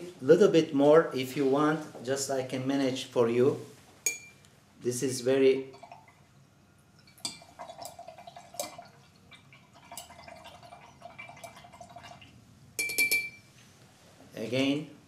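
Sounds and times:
glass clinking on glass: 0:04.0 - 0:04.4, 0:12.8 - 0:13.5
faint liquid sounds: 0:05.3 - 0:12.6
glass rods clicking in jar: 0:12.8 - 0:13.4.

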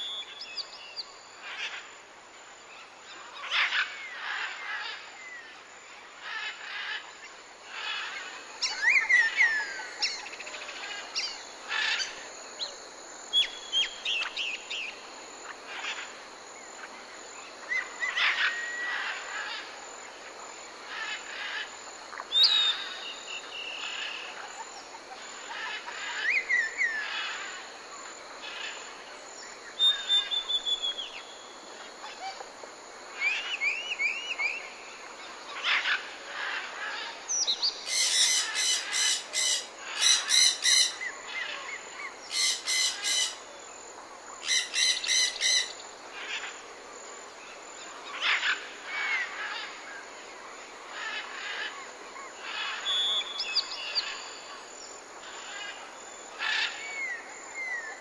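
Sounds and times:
birds whistling and chirping: 0:00.0 - 0:01.0, 0:22.3 - 0:23.8, 0:29.8 - 0:31.3, 0:52.9 - 0:54.2.

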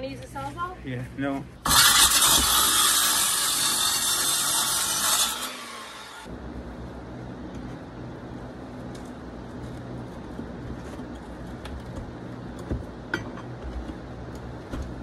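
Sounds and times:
power saw cutting: 0:01.6 - 0:06.3.

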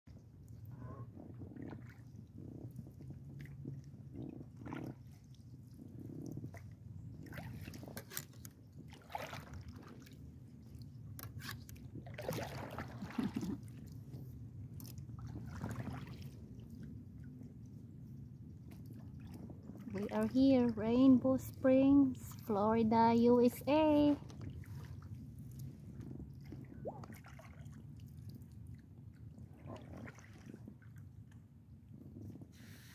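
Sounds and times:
wind rumble: 0:00.1 - 0:11.2, 0:11.8 - 0:27.2, 0:27.8 - 0:32.9
kayak paddle splashing: 0:06.4 - 0:14.2, 0:14.8 - 0:16.8, 0:18.6 - 0:28.6, 0:29.2 - 0:31.1.

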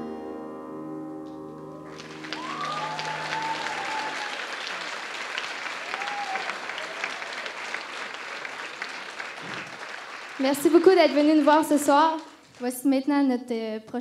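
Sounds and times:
crowd calling out: 0:01.7 - 0:08.6
audience applauding: 0:01.8 - 0:12.7.

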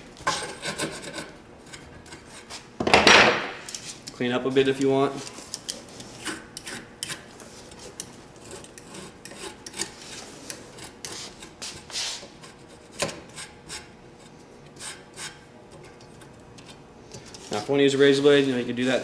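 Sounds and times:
grip tape scraping on metal: 0:03.6 - 0:04.2, 0:05.2 - 0:17.6.

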